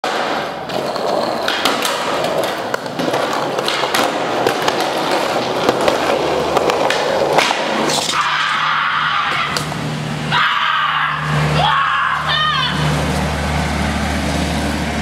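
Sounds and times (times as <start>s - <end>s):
skateboard clacks: 0.0s - 8.6s
skateboard wheels rumbling: 0.0s - 10.3s.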